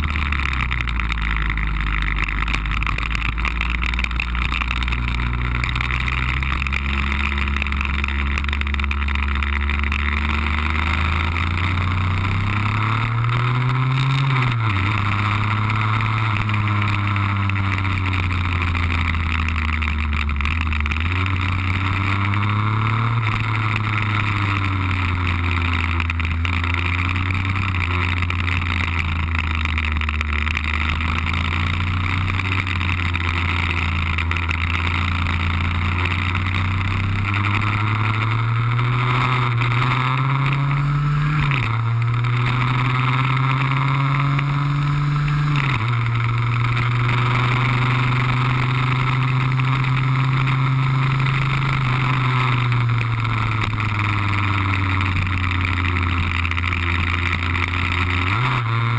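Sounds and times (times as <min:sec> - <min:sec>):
scooter two-stroke engine running hard: 0:00.0 - 0:58.9.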